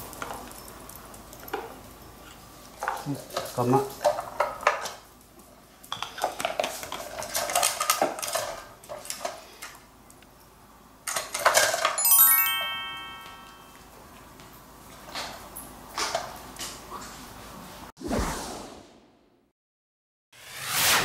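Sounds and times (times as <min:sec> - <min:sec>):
bell-like chime: 0:12.0 - 0:13.8.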